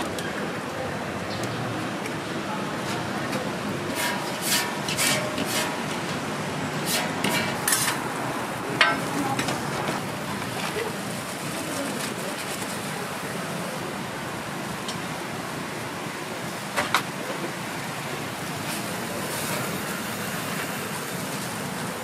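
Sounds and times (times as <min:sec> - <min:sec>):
oil sizzling on griddle: 0:06.8 - 0:08.2, 0:18.5 - 0:22.0
metal utensils clanking: 0:06.9 - 0:08.0.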